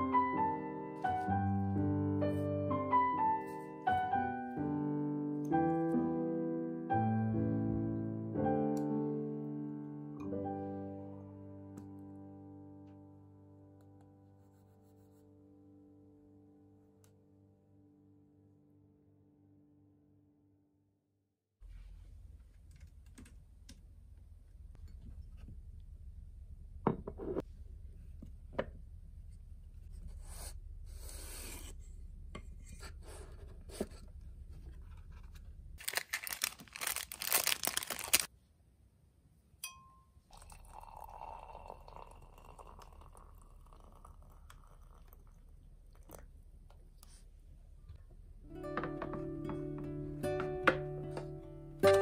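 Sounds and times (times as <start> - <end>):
faint low hum: 21.6 - 35.8
paper packets handled: 35.0 - 38.3
paper packet tearing: 35.8 - 38.3.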